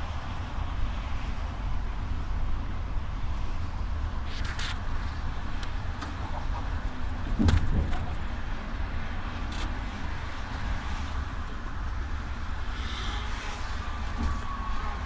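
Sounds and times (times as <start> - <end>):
bus engine and tyres rumbling: 0.0 - 15.0
thump inside bus: 7.3 - 8.2.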